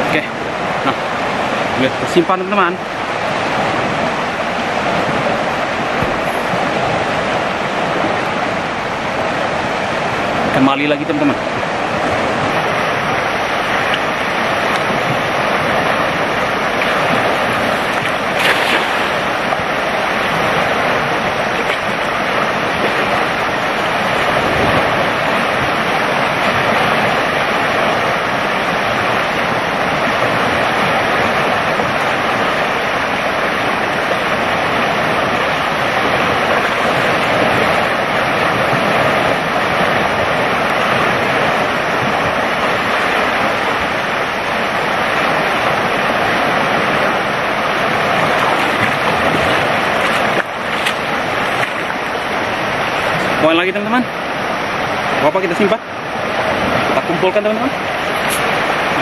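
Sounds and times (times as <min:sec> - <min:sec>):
fast-flowing river rushing: 0:00.0 - 0:59.0.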